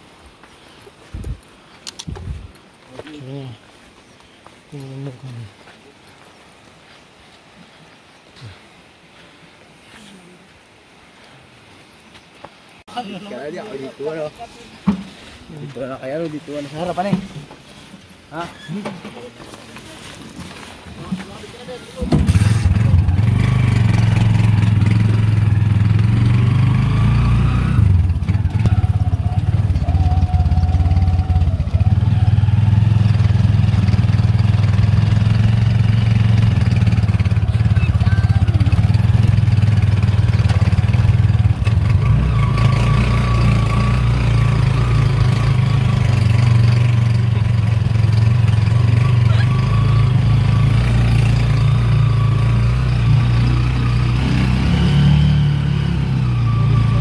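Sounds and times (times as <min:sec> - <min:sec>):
motorcycle engine running: 0:22.1 - 0:54.6.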